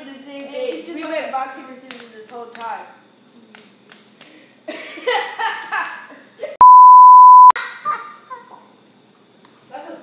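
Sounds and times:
high-pitched test tone beep: 6.6s - 7.6s.

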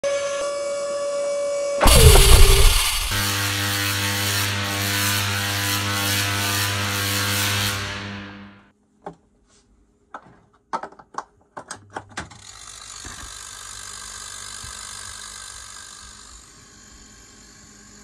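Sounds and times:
rush of air: 1.8s - 3.2s.

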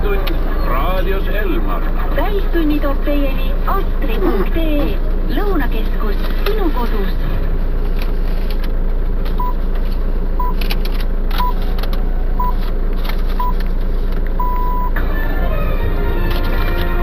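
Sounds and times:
steady low hum: 0.0s - 17.0s
radio time signal beeps: 14.4s - 15.0s.

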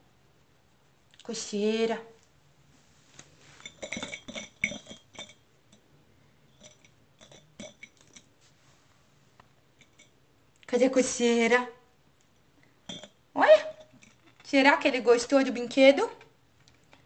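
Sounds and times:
metallic jingling and clinking: 3.6s - 5.4s, 12.9s - 13.2s.

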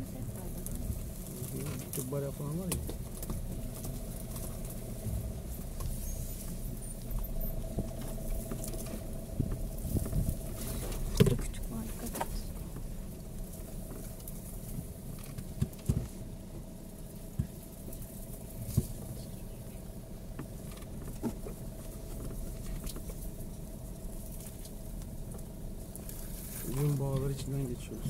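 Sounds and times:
car knocks and rattles: 0.0s - 19.2s, 19.9s - 26.1s
car engine and tyres rumbling: 0.0s - 28.0s.

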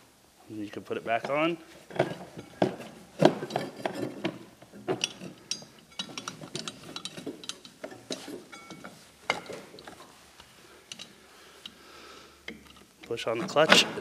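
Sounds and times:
metallic clinks and knocks: 1.2s - 10.2s, 10.9s - 11.8s.

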